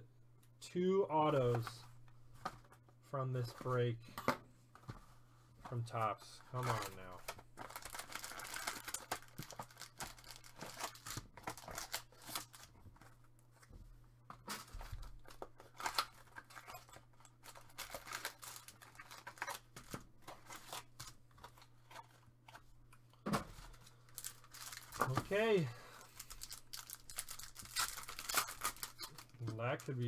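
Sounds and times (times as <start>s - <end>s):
cards rustling: 5.7s - 13.7s, 14.3s - 30.0s.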